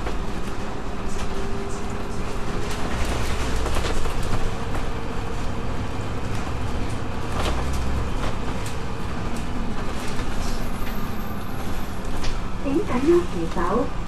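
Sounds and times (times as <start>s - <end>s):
bus body knocks and rattles: 0.0s - 11.0s
bus engine rumble: 0.0s - 14.0s
road noise: 0.0s - 14.0s.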